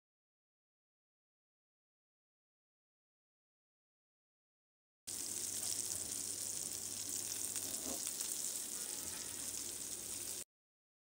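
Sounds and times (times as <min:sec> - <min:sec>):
chicken sizzling in hot oil: 0:05.1 - 0:10.5.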